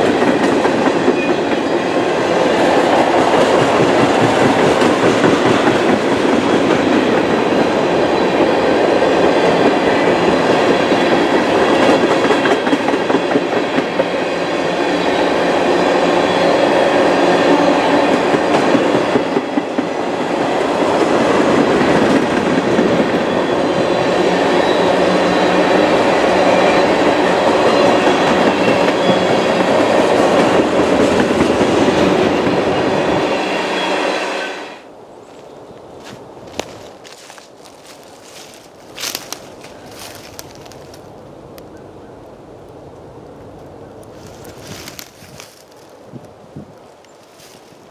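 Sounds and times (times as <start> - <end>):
clickety-clack over rail joints: 0.0 - 1.7, 2.8 - 8.5, 9.3 - 14.2, 18.0 - 19.9, 27.8 - 32.6
freight train wheels rumbling on rails: 0.0 - 34.4, 36.0 - 42.0, 43.0 - 47.9.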